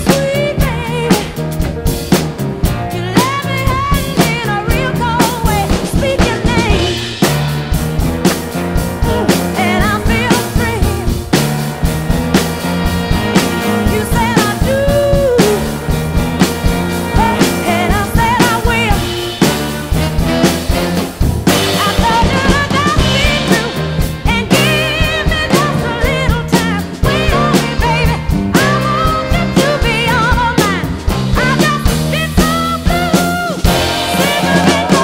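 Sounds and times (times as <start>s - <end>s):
drum kit playing: 0.0s - 35.0s
recorded song with singer: 13.2s - 19.2s, 21.7s - 35.0s.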